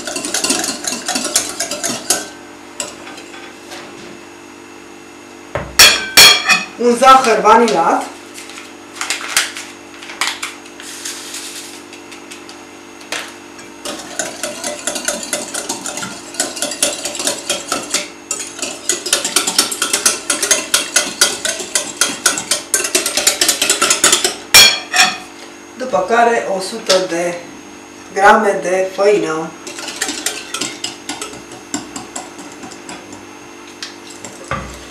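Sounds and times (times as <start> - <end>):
whisk clicking against glass bowl: 13.9 - 24.7, 29.7 - 33.2.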